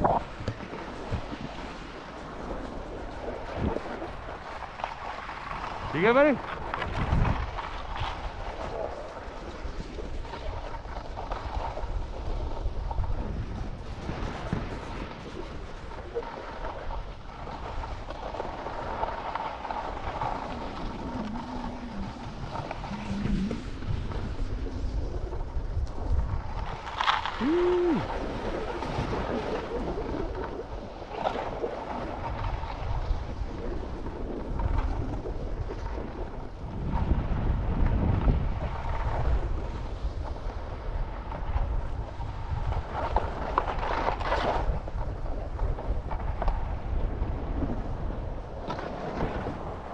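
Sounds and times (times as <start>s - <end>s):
skis sliding on hard snow: 0.0s - 49.9s
wind buffeting microphone: 0.0s - 49.9s.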